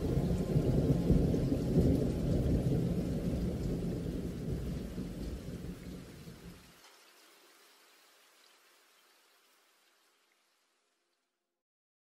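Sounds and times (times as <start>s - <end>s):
rolling thunder rumble: 0.0s - 6.6s
rain: 0.0s - 11.4s.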